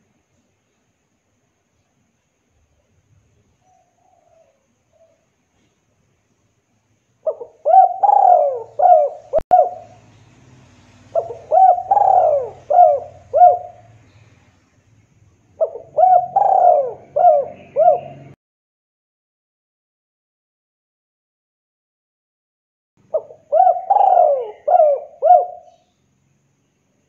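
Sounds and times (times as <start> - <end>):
dove cooing: 7.2 - 10.0, 11.1 - 14.0, 15.6 - 18.4, 23.1 - 25.8.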